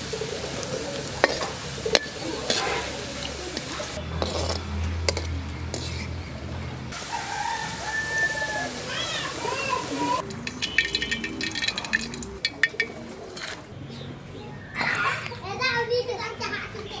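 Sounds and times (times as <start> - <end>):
food deep-frying in hot oil: 0.0 - 5.9, 6.9 - 12.6
metal spoon scraping and stirring: 1.2 - 6.5, 10.2 - 13.7.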